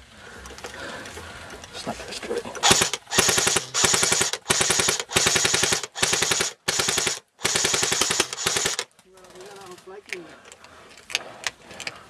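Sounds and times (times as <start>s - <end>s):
rifle firing automatic bursts: 2.6s - 9.5s.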